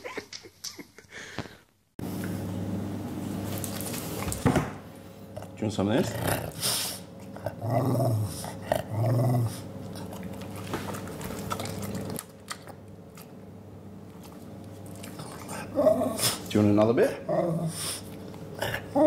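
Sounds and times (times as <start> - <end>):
dog growly vocalizations: 5.3 - 12.8, 14.2 - 19.0.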